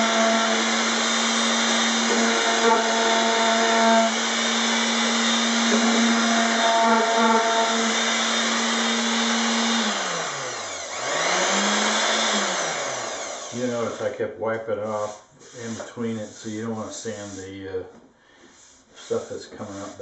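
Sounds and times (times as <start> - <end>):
electric palm sander running: 0.0 - 14.0.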